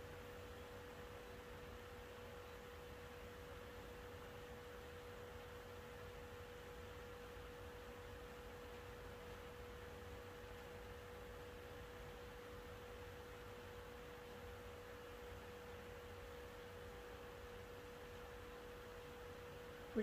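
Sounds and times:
faint electrical hum: 0:00.0 - 0:20.0.

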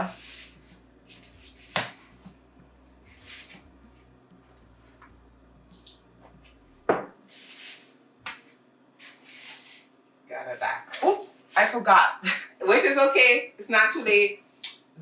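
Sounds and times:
dough squishing in plastic bowl: 0:00.0 - 0:06.7.

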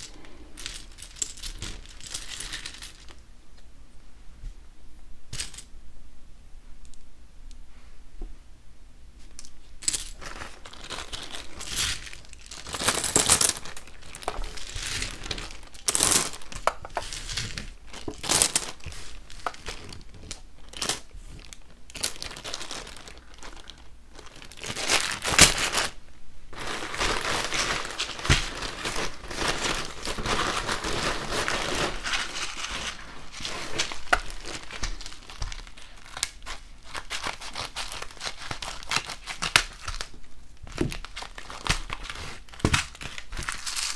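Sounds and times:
plastic packaging crinkling: 0:09.8 - 0:43.9.

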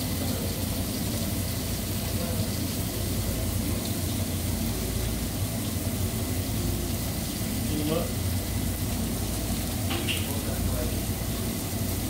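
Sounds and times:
gas stovetop hiss: 0:00.0 - 0:12.0
meat frying in a pan: 0:00.0 - 0:12.0.

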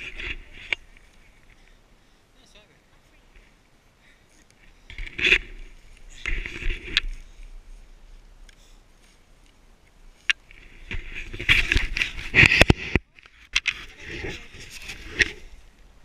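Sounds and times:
sled runners and boots on snow: 0:04.7 - 0:13.0.

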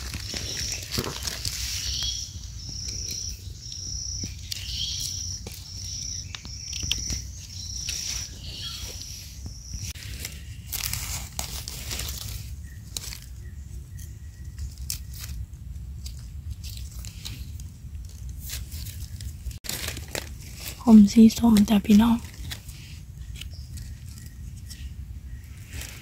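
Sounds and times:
rustling in dry leaves: 0:00.0 - 0:26.0
high chirp: 0:01.5 - 0:10.0.

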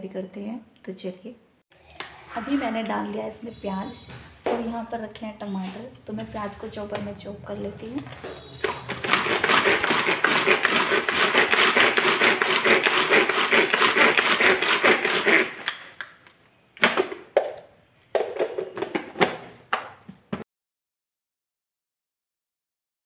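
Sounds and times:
cord vegetable chopper rattling: 0:08.6 - 0:16.0.

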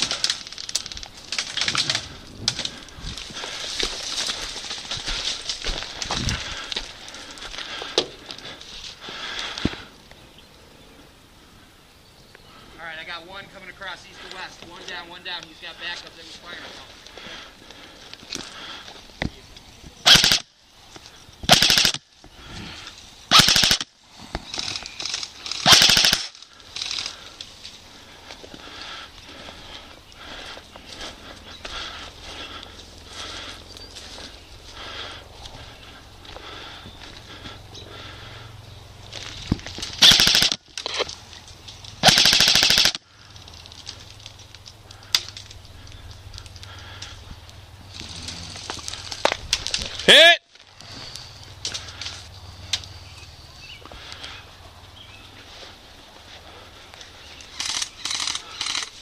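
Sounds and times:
airsoft rifle full-auto bursts: 0:20.1 - 0:20.4, 0:21.5 - 0:22.0, 0:23.3 - 0:23.8, 0:25.5 - 0:27.1, 0:40.0 - 0:40.6, 0:42.0 - 0:43.0.

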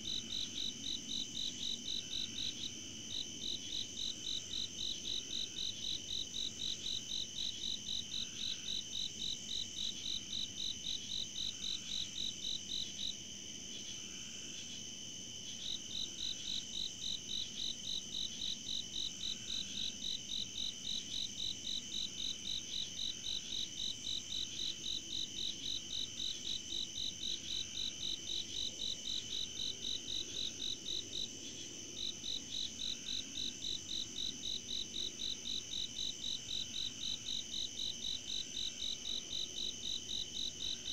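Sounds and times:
crickets chirping: 0:00.0 - 0:40.9
high insect drone: 0:00.0 - 0:40.9.

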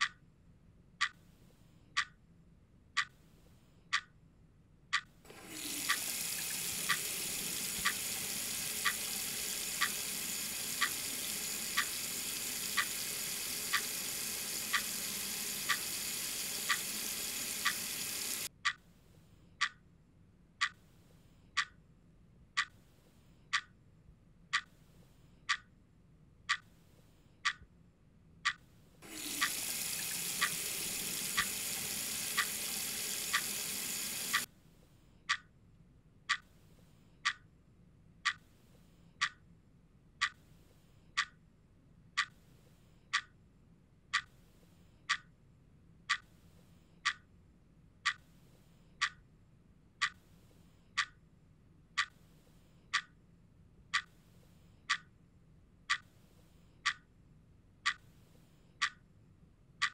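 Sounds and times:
tap running into sink: 0:05.3 - 0:18.5, 0:29.0 - 0:34.4
sharp ticking: 0:05.6 - 0:18.5, 0:29.1 - 0:34.5.

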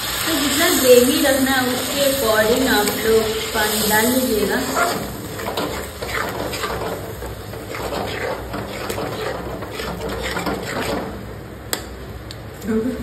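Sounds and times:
spoon stirring wet gravy: 0:04.4 - 0:11.3.

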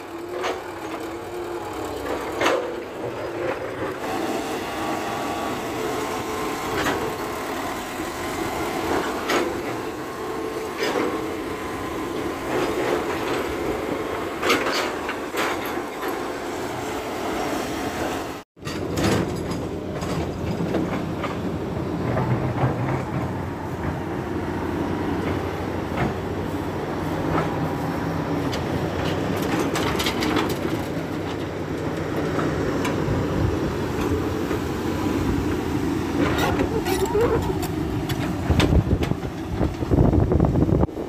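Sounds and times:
diesel engines running: 0:00.0 - 0:41.0
knocks and clanks: 0:18.6 - 0:24.0, 0:36.2 - 0:40.2.

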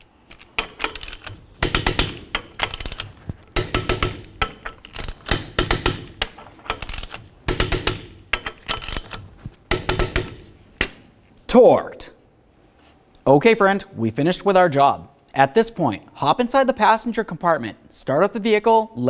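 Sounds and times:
torque wrench clicking: 0:00.6 - 0:10.4.

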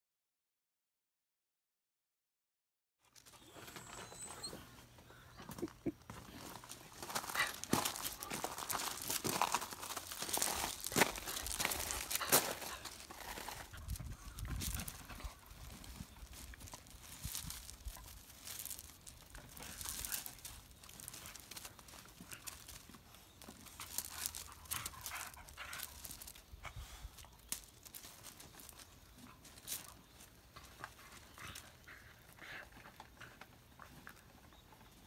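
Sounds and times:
dog feet scuffling on gravel: 0:03.2 - 0:32.3
rope scraping over stones: 0:06.1 - 0:31.9.

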